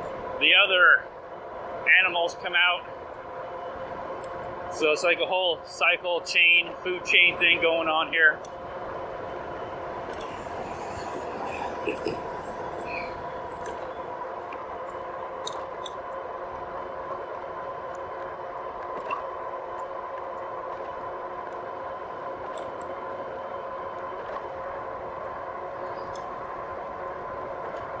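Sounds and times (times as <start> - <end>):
electric motor whine: 9.0 - 15.6.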